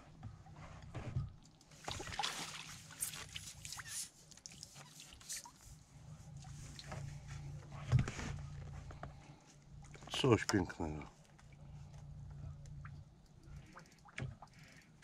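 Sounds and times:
fish rustling in wet net: 1.8s - 5.8s.

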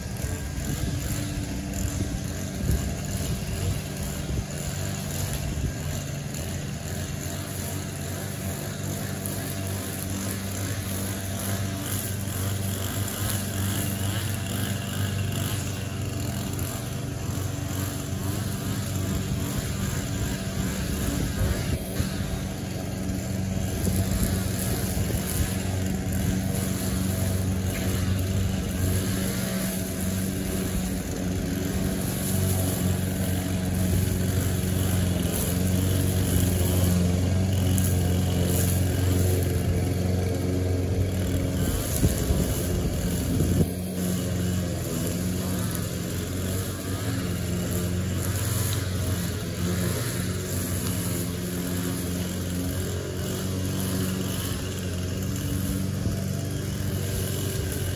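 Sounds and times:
string trimmer engine running: 0.0s - 57.9s.

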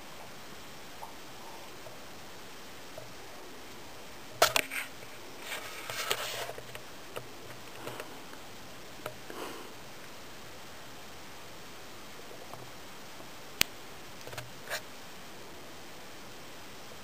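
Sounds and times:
faint clicks: 4.4s - 8.4s.

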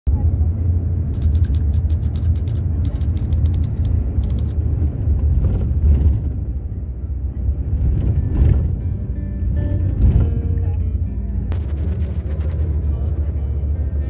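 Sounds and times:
vehicle rumble from inside: 0.1s - 14.0s
quick rattling ticks: 1.1s - 4.6s.

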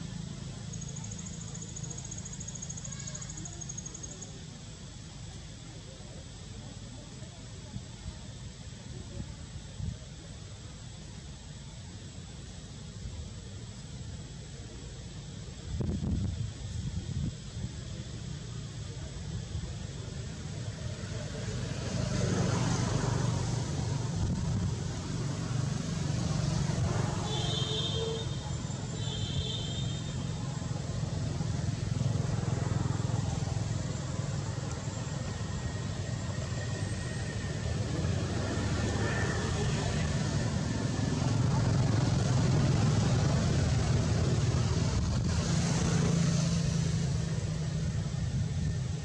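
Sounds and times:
insect trilling: 0.0s - 6.4s
low steady rumble: 22.9s - 49.0s.

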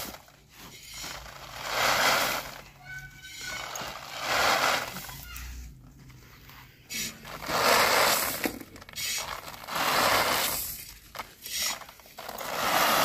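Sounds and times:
grains rattling as emptied: 0.0s - 5.2s, 6.9s - 13.0s
metal scoop raking grains in wok: 6.9s - 10.8s.

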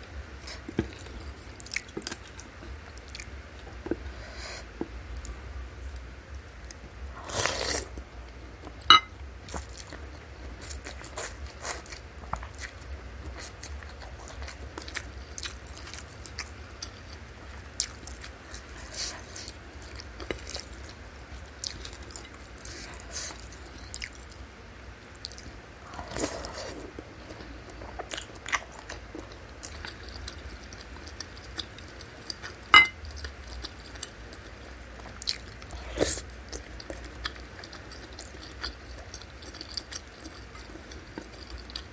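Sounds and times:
spoon clinking a ceramic bowl: 8.9s - 9.1s, 32.8s - 33.0s.

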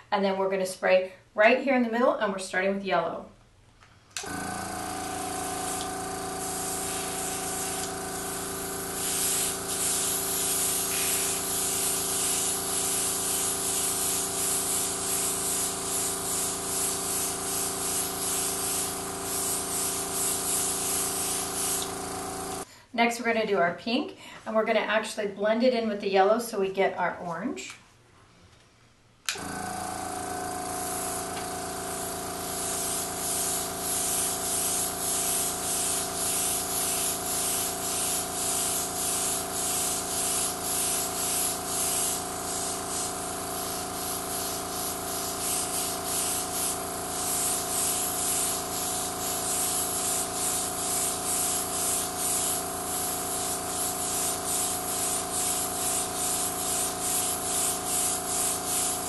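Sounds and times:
air compressor humming: 4.0s - 22.7s, 29.3s - 59.0s
airbrush spraying hiss: 4.8s - 22.6s, 29.7s - 59.0s.

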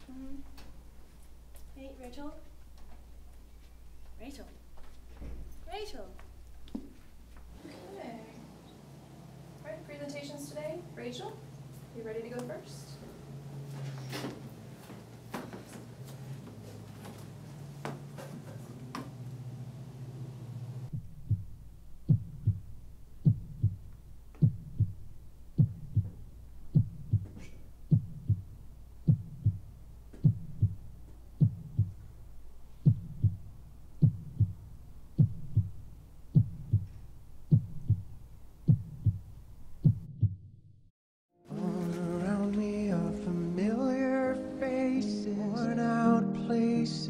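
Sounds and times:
steady low hum: 0.0s - 40.7s
heartbeat thumps: 20.9s - 32.1s, 32.7s - 40.6s.

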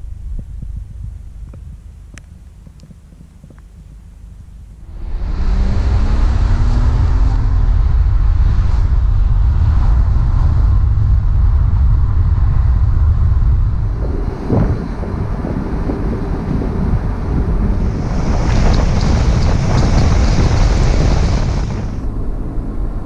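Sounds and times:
wind rush on microphone: 0.0s - 23.0s
car engine accelerating: 4.8s - 10.7s, 13.7s - 23.0s.

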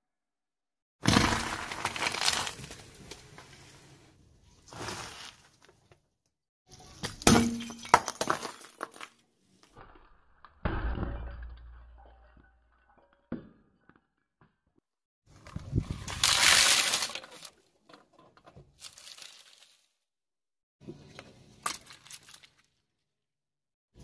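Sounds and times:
glass crunching under car tyre: 1.1s - 3.1s, 15.9s - 17.5s, 18.8s - 19.8s.

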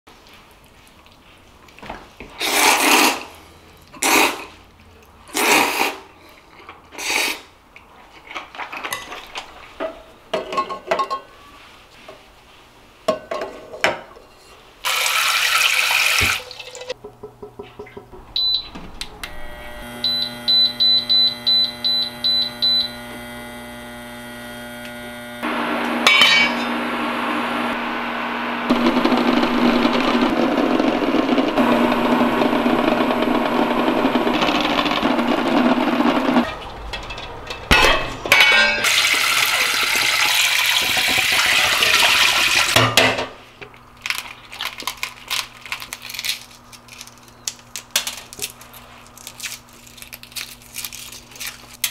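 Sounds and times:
cooktop humming: 0.1s - 51.9s
noodles slurped: 2.4s - 3.4s
running water: 14.9s - 17.0s
eggs knocking against metal pot: 17.0s - 18.2s
cooktop beeps: 18.4s - 23.5s, 25.5s - 28.1s
water hissing in pot: 38.8s - 42.8s.

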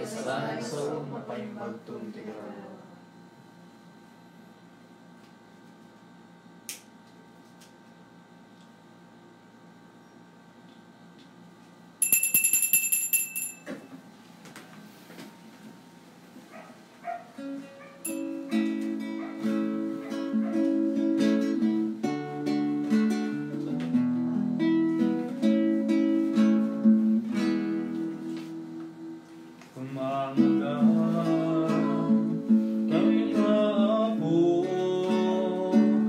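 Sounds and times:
high metallic ringing: 12.0s - 14.0s, 18.0s - 18.6s
acoustic guitar music: 17.1s - 36.0s.

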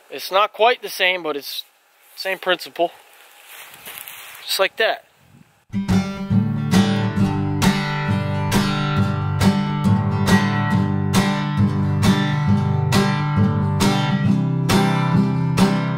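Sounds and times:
acoustic guitar strumming: 5.7s - 15.9s.

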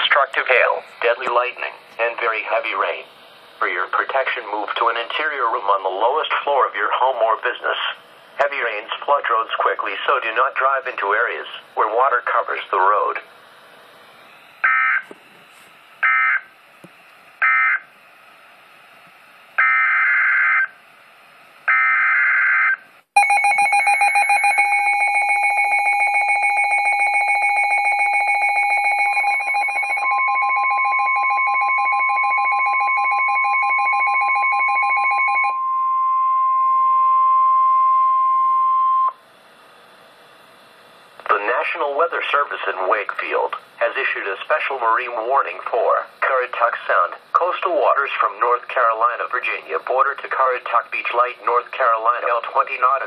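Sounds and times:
steady warning alarm tone: 14.3s - 15.1s, 16.0s - 16.5s, 17.4s - 17.9s, 19.6s - 20.8s, 21.7s - 39.2s
fast-pulsing alarm beeping: 14.6s - 15.0s, 16.0s - 16.4s, 21.7s - 39.2s.

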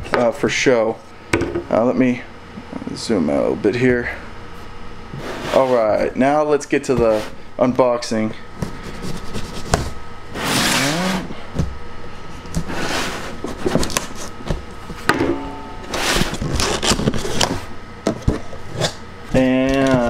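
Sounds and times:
cardboard scraping and rustling: 8.7s - 11.3s, 12.4s - 15.0s, 15.8s - 20.0s
packing tape cut and pulled: 10.4s - 11.3s, 16.2s - 17.6s.

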